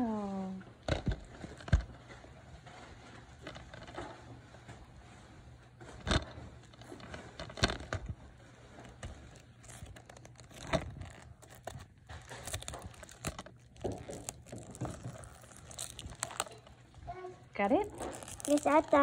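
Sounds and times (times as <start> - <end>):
shrink-wrap crinkling and tearing: 5.9 - 19.0.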